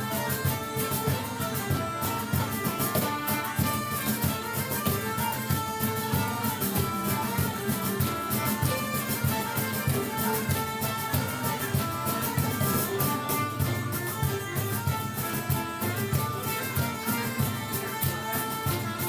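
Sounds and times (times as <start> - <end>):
cajon beat: 0.0 - 19.0
melodica melody: 0.0 - 19.0
strummed acoustic guitars: 0.0 - 19.0.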